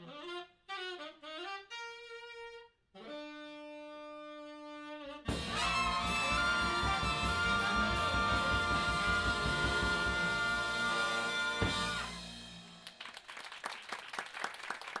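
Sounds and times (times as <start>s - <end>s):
jazz big band playing: 0.0s - 12.8s
audience applause: 12.8s - 15.0s.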